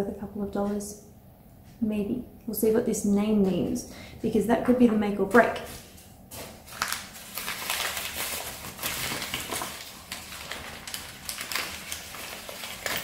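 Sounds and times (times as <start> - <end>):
hands rummaging through ornaments: 6.7 - 13.0.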